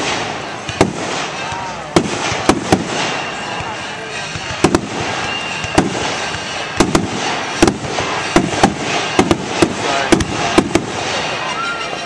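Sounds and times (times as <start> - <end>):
firework shells booming: 0.0 - 12.0.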